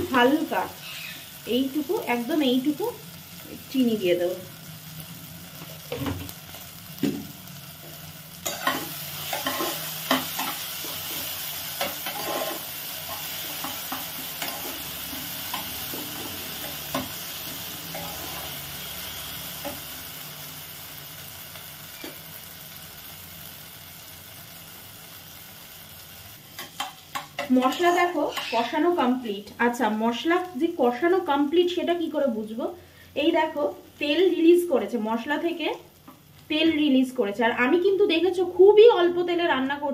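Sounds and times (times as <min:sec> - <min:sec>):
paste sizzling in a pot: 0:00.0 - 0:38.3
spatula scraping a pot: 0:10.4 - 0:13.8.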